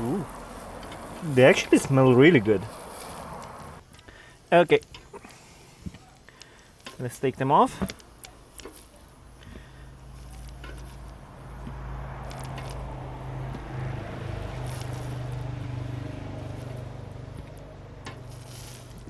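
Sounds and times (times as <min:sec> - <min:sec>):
low engine-like hum: 0:09.2 - 0:19.0.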